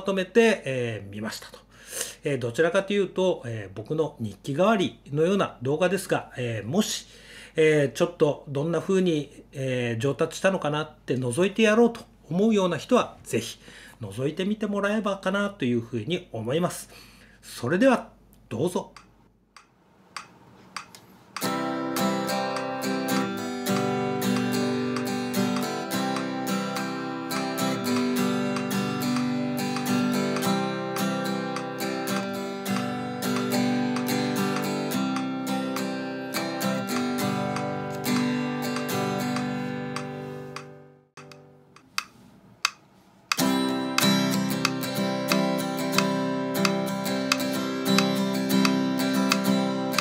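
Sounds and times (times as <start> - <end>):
acoustic guitar strumming: 21.4 - 41.8, 43.3 - 50.0.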